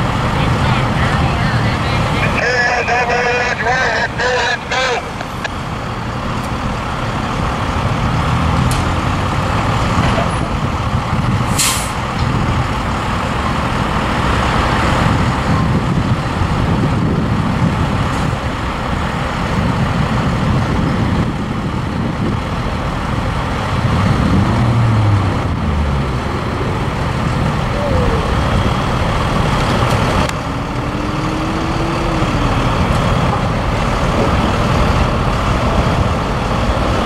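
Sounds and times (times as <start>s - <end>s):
heavy truck engine rumbling: 0.0s - 37.0s
air brakes hissing: 11.5s - 12.0s.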